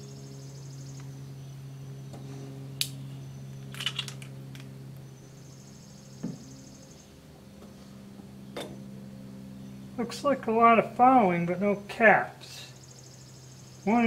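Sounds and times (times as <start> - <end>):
pulsing insect buzz: 0.0 - 1.6, 2.2 - 8.2, 10.8 - 14.0
steady low hum: 0.0 - 14.0
dull knock: 6.2 - 6.4.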